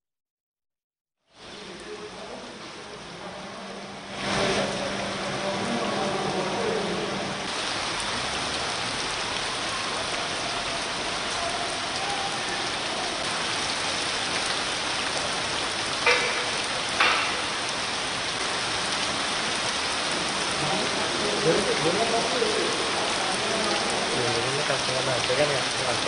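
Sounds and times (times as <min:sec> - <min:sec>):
hail and rain pelting ground: 0:07.4 - 0:26.0
loud knocks: 0:16.0 - 0:17.5.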